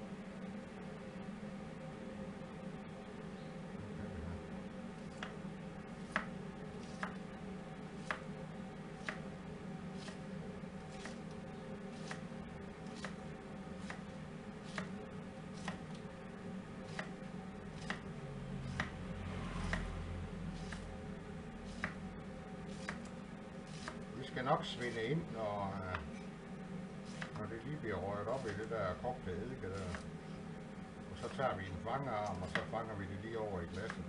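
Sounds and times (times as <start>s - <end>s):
knife slicing cabbage on board: 6.0s - 7.2s, 8.0s - 8.3s, 9.0s - 9.2s, 10.0s - 11.3s, 11.9s - 13.2s, 13.8s - 15.0s, 15.6s - 16.0s, 16.9s - 17.2s, 17.8s - 18.0s, 18.6s - 19.0s, 20.6s - 20.9s, 21.6s - 22.0s, 22.7s - 23.1s, 23.7s - 24.1s, 27.0s - 27.4s, 29.8s - 30.1s, 32.2s - 32.7s.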